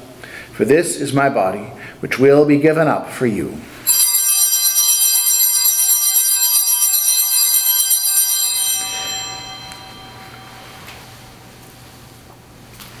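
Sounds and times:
altar bells ringing: 0:03.9 - 0:11.7.

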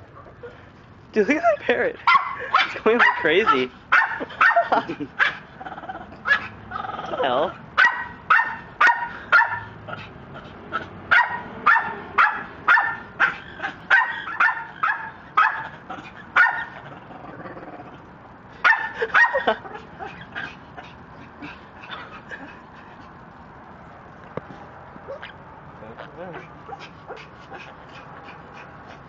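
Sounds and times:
parrot squawking: 0:25.1 - 0:26.9.

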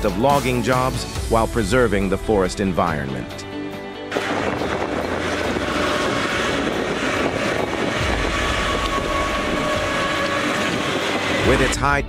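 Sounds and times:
deep low rumble: 0:04.1 - 0:11.8
harvester engine and hydraulics: 0:04.1 - 0:12.0.

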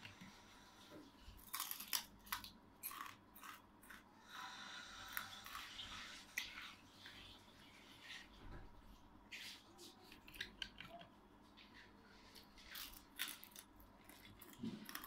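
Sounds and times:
person chewing crunchy food: 0:01.3 - 0:04.2, 0:12.4 - 0:15.0.

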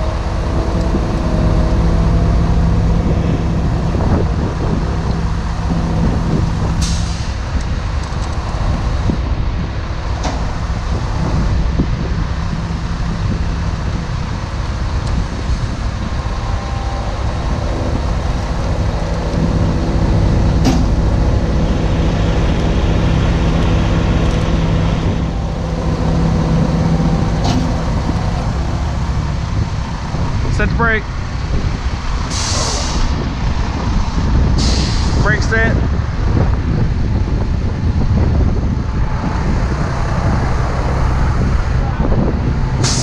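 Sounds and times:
diesel truck engine running: 0:00.0 - 0:43.0
sharp clicks or knocks: 0:20.6 - 0:21.1.

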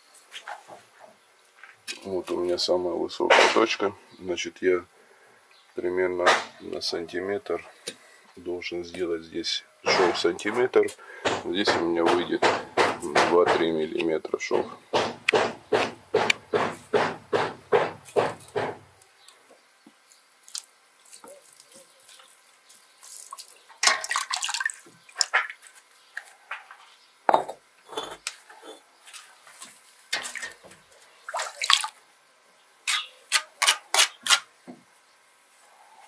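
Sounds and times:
bricks knocking: 0:11.2 - 0:13.7, 0:14.6 - 0:18.8
trowel scraping and slapping mortar: 0:32.9 - 0:34.5.

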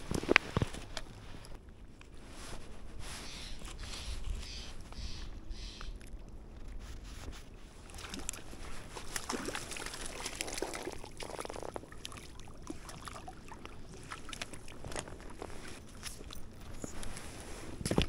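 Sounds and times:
water sloshing and splashing: 0:06.0 - 0:18.0.

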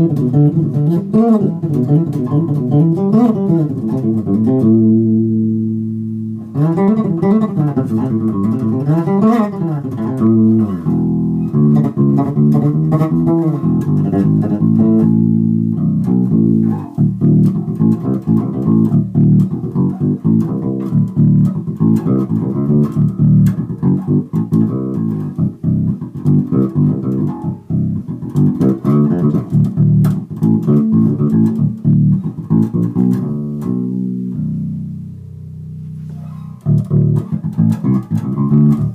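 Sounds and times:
electric bass plucked: 0:00.0 - 0:38.9.

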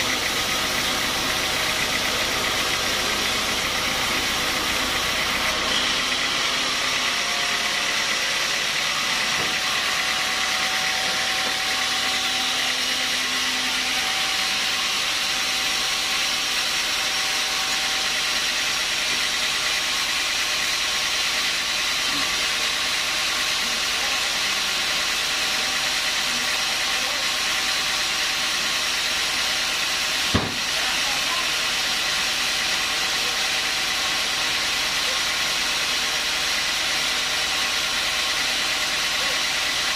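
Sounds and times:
band sawmill running: 0:00.0 - 0:39.9
sharp knock: 0:30.3 - 0:30.7.

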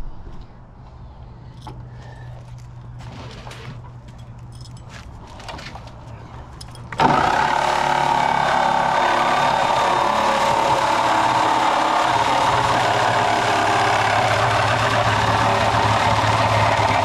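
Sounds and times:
light clicks and handling noise: 0:01.5 - 0:07.0
reciprocating saw cutting steel: 0:07.0 - 0:17.0.

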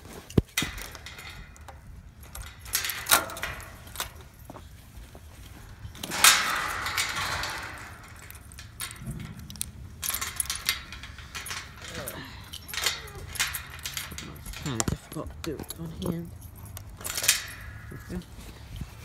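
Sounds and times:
rustling: 0:00.0 - 0:19.0.

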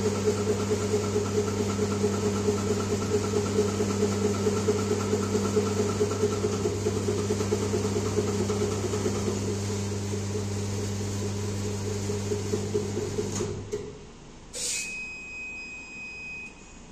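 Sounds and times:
high electronic beep: 0:14.6 - 0:16.9.

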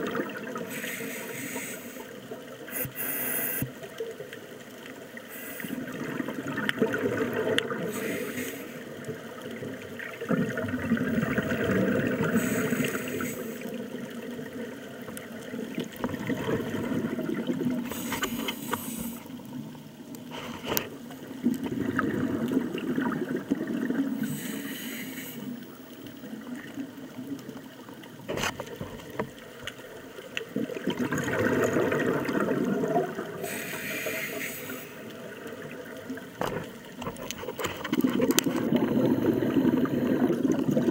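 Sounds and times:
gurgle of exhaled bubbles: 0:00.0 - 0:00.7, 0:05.7 - 0:08.2, 0:08.8 - 0:18.4, 0:21.2 - 0:24.4, 0:29.8 - 0:33.5, 0:35.1 - 0:40.9
diver inhaling through regulator: 0:00.7 - 0:03.7, 0:05.3 - 0:05.8, 0:07.8 - 0:08.9, 0:11.6 - 0:13.8, 0:17.8 - 0:19.3, 0:24.1 - 0:25.7, 0:33.4 - 0:35.1.

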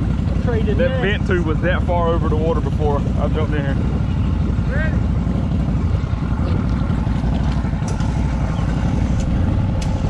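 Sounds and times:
vehicle engine low rumble: 0:00.0 - 0:10.0.

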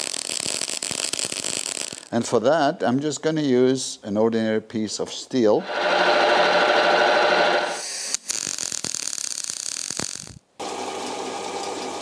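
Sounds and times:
metal lathe motor hum: 0:05.6 - 0:07.8
scratchy ticking of lathe cutting: 0:05.6 - 0:07.8
drill press boring metal: 0:05.6 - 0:07.9.

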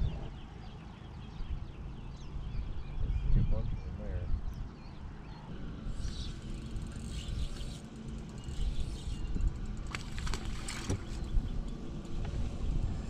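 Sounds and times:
fishing reel whirring: 0:05.9 - 0:12.1.

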